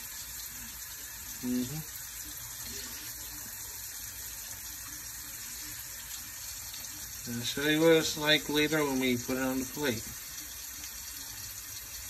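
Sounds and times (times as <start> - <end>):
pot simmering hiss: 0.0 - 12.0.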